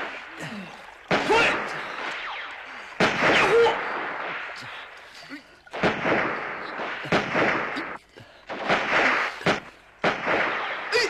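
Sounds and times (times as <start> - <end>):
loud gunshots: 0.0 - 11.0.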